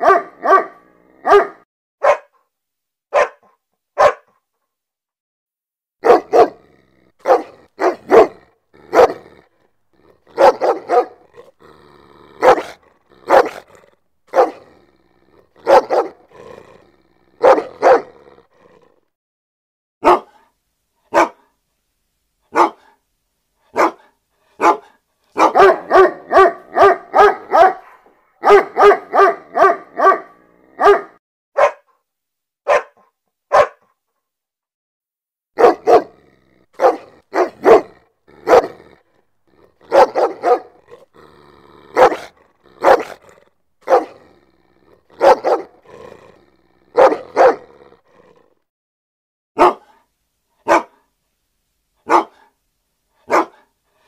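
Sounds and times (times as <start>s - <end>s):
dog barking: 0.0s - 2.4s, 3.1s - 4.4s, 6.0s - 9.4s, 10.0s - 11.5s, 12.4s - 14.8s, 15.6s - 16.3s, 17.4s - 18.2s, 20.0s - 20.5s, 21.1s - 21.6s, 22.5s - 23.0s, 23.7s - 32.0s, 32.6s - 34.0s, 35.6s - 36.2s, 36.8s - 39.0s, 39.8s - 41.0s, 41.8s - 44.3s, 45.0s - 46.0s, 46.9s - 47.8s, 49.6s - 51.1s, 52.0s - 52.6s, 53.2s - 53.7s.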